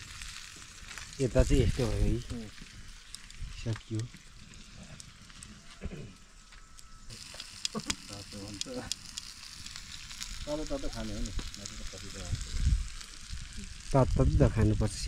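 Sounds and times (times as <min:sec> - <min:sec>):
meat sizzling on hot stone: 0:00.0 - 0:15.0.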